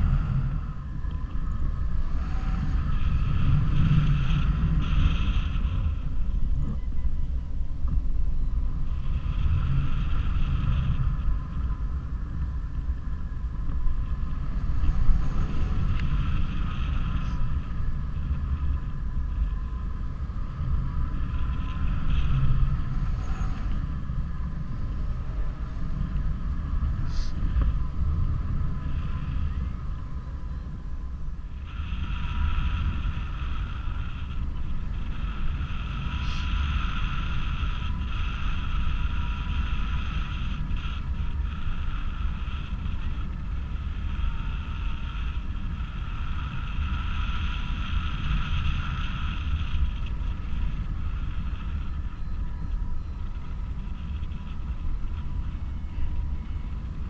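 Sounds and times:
faint steady high tone: 0.0s - 57.0s
wind buffeting microphone: 0.0s - 57.0s.

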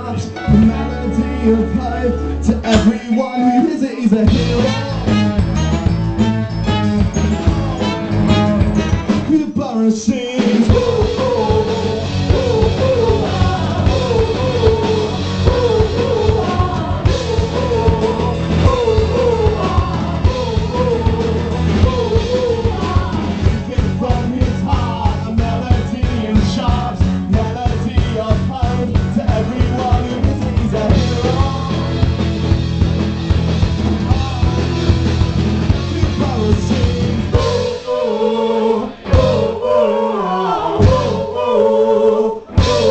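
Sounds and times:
drum kit beat: 0.0s - 1.8s, 4.0s - 9.5s, 10.3s - 39.9s, 40.8s - 41.5s, 42.5s - 42.9s
person singing: 0.0s - 5.6s, 6.2s - 32.4s, 35.8s - 42.9s
electric guitar: 0.0s - 9.3s, 10.4s - 37.9s
keyboards: 0.0s - 9.5s.

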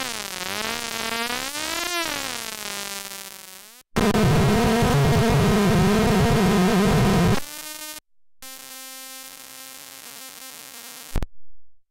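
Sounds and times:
harsh electronic synth buzz: 4.0s - 7.5s.

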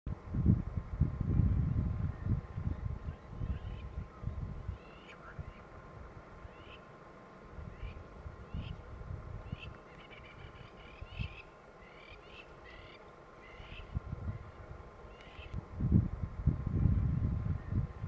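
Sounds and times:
wind rumble on microphone: 0.1s - 6.7s, 7.4s - 11.4s, 13.4s - 18.0s
birds chirping: 2.1s - 7.0s, 9.4s - 15.6s.

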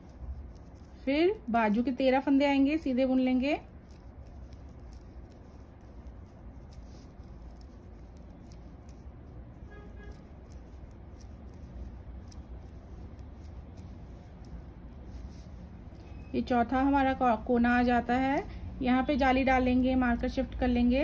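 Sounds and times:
low steady background hum: 0.0s - 21.0s.

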